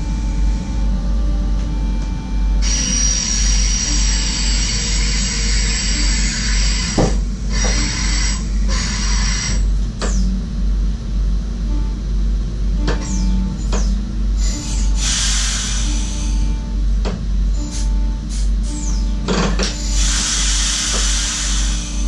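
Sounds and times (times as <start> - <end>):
train low rumble: 0.0 - 22.0
hiss: 14.7 - 16.0, 20.0 - 22.0.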